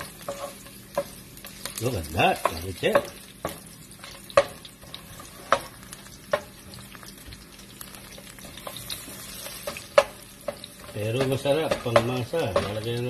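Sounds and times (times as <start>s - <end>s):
garlic sizzling in hot oil: 0.0s - 13.0s
spatula knocking against pan: 2.3s - 3.7s, 4.3s - 4.7s, 5.3s - 6.8s, 9.6s - 12.9s.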